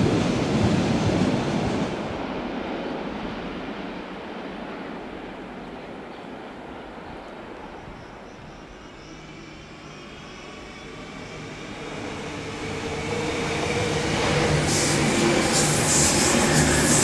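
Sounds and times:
electric train passing: 0.0s - 17.0s
wheels hissing on rail: 8.5s - 17.0s.

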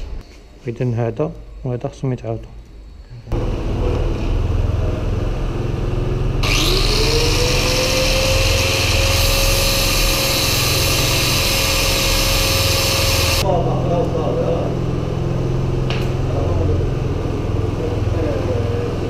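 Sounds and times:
disc grinder whining: 6.4s - 13.4s.

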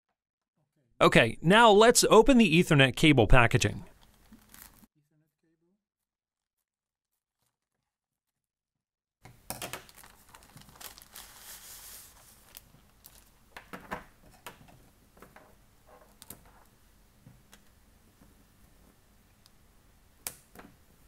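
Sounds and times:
plastic bag crinkling: 4.0s - 4.9s, 9.6s - 13.4s.

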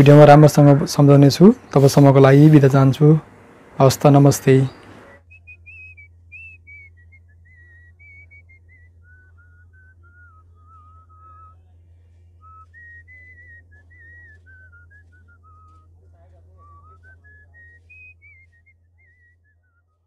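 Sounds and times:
steady low hum: 0.0s - 20.0s
faint whistled tune: 4.7s - 20.0s.

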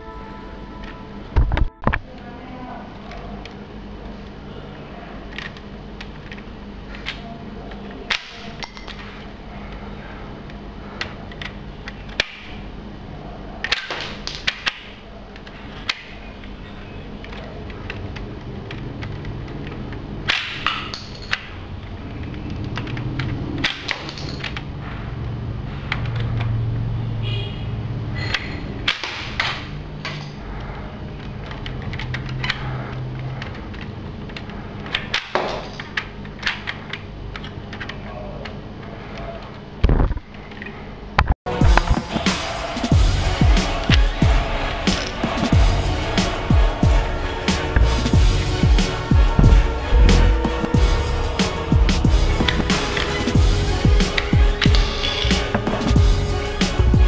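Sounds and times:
low steady hum: 0.0s - 23.6s, 35.8s - 57.0s.

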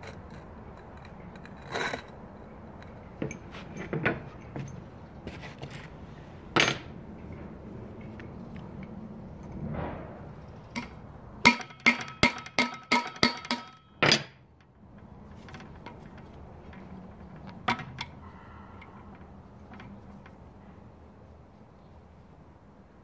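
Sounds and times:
ringing metallic clanks: 2.9s - 4.9s, 10.8s - 14.4s.

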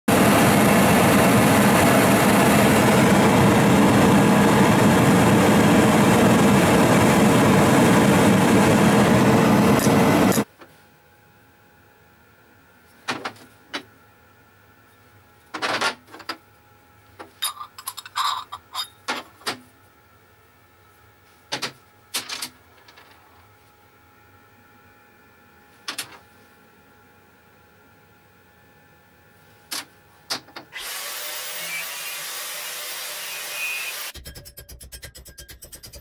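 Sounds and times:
propane burner flame roaring: 0.1s - 10.5s
metal parts clinking on bench: 17.3s - 19.2s.

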